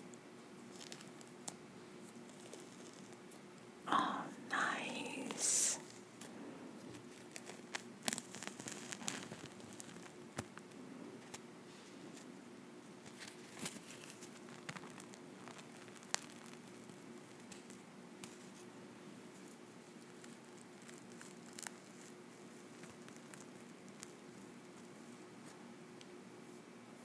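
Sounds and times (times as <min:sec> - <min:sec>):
face mask peeling from skin: 0:02.2 - 0:03.2, 0:07.1 - 0:10.6, 0:13.2 - 0:17.8, 0:20.0 - 0:24.2.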